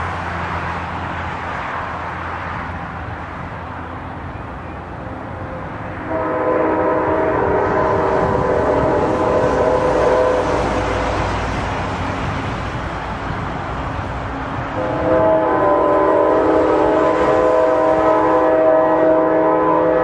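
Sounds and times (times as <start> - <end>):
train rumble: 0.0 - 20.0
locomotive air horn blasts: 5.0 - 11.3, 14.8 - 20.0.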